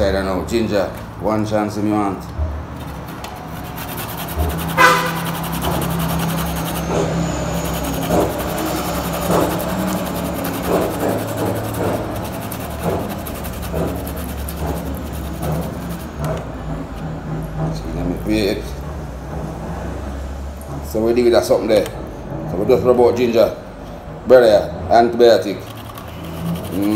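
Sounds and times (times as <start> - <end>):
ginger rasping on metal grater: 2.0 - 16.5, 25.3 - 26.9.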